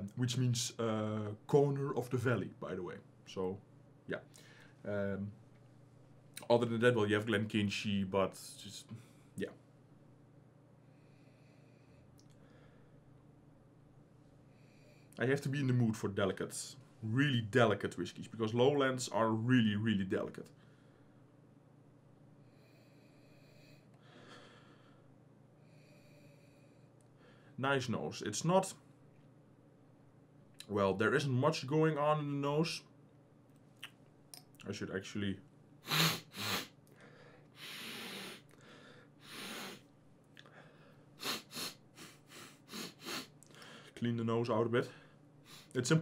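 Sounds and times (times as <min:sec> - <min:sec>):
man breathing through nose: 0:22.4 - 0:27.6, 0:35.9 - 0:44.0, 0:45.0 - 0:45.8
man snorting: 0:35.8 - 0:36.8, 0:37.6 - 0:38.5, 0:39.2 - 0:39.9, 0:41.2 - 0:43.8
man sniffing: 0:35.8 - 0:43.9, 0:45.5 - 0:45.8.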